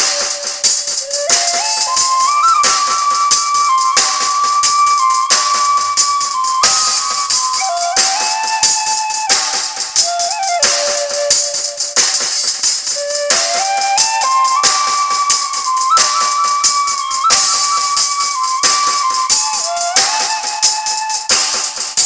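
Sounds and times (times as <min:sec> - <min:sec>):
bamboo flute melody: 0:00.0 - 0:22.0
shaker rhythm: 0:00.0 - 0:22.0.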